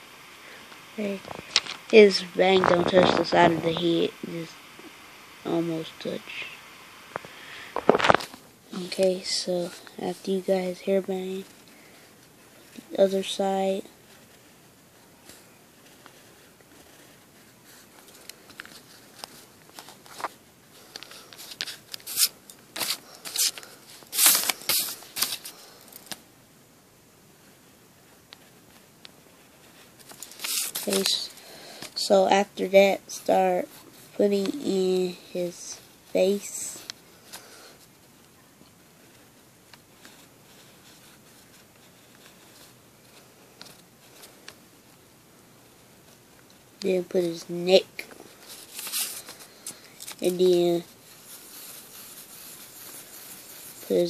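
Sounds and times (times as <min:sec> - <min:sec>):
pencil scratching on paper: 0:50.2 - 0:54.0.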